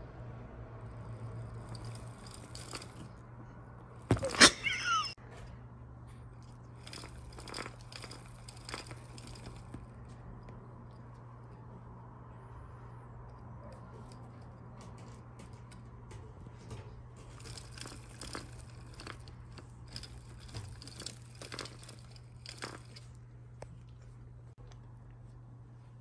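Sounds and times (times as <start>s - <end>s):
steady low hum: 0.0s - 26.0s
crunching and crinkling clicks: 13.3s - 25.4s.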